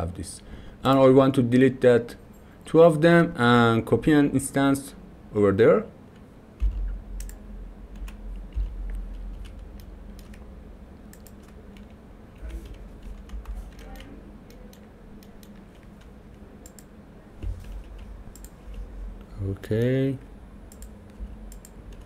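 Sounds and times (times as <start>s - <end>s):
keyboard and mouse clicks: 6.2s - 10.4s, 11.1s - 18.8s, 20.7s - 22.0s.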